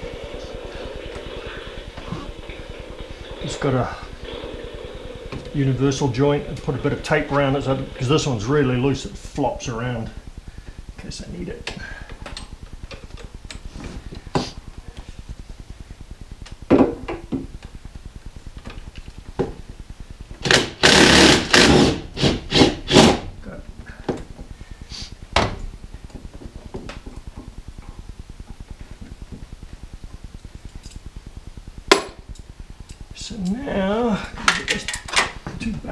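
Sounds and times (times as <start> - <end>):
rapid ratcheting: 20.4 - 23.2.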